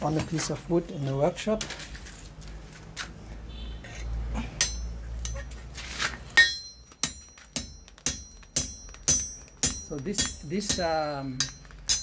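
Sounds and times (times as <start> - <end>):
hammer striking steel on anvil: 4.6 - 5.5, 6.4 - 12.0.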